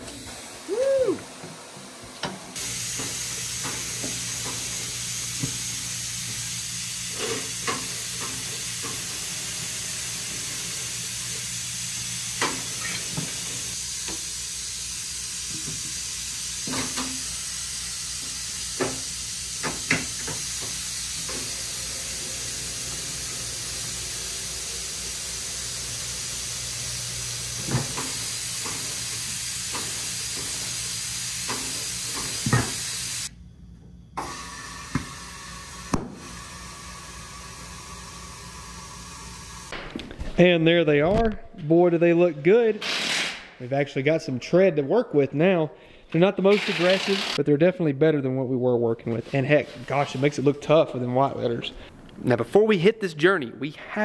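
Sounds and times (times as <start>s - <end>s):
steady hiss: 0.0s - 33.3s.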